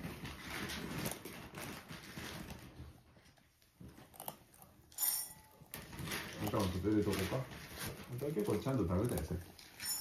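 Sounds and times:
cat crunching dry kibble: 3.8s - 5.0s, 5.6s - 10.0s.

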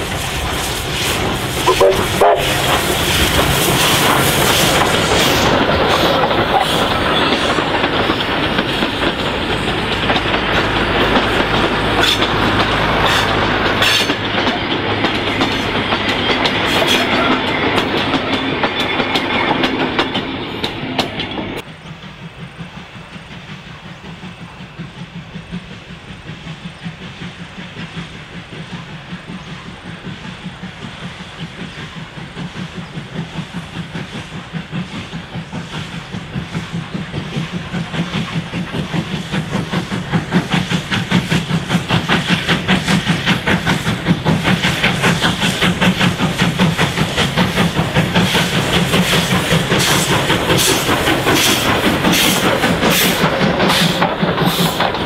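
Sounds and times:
pulsing locomotive exhaust beat: 0.0s - 55.0s
steam locomotive passing: 0.0s - 55.0s
wheels clattering over rail joints: 1.8s - 21.7s.

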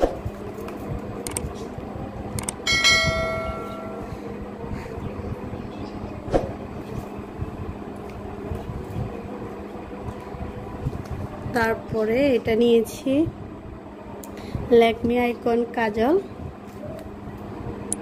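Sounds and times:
fan hum: 0.0s - 18.0s
sharp clicks: 1.2s - 1.5s, 2.4s - 2.6s
bell chime: 2.7s - 4.1s.

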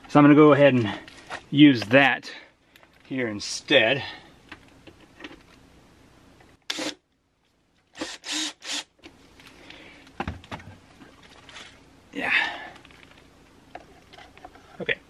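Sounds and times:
cordless drill driving screw: 6.7s - 7.0s, 8.0s - 8.9s.

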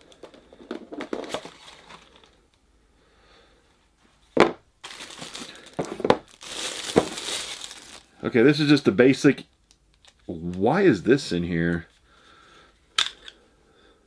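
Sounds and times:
plastic wrapping crinkling: 4.8s - 8.3s.

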